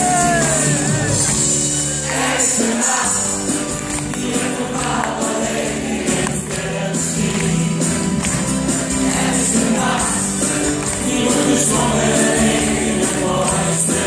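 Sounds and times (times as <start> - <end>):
live band music: 0.0 - 14.0
man singing: 6.4 - 8.2, 11.0 - 14.0.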